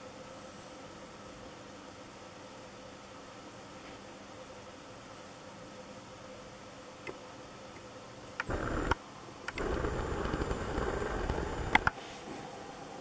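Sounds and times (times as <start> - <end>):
camera handling rumbling: 8.4 - 11.9
camera clicks: 8.4 - 12.0.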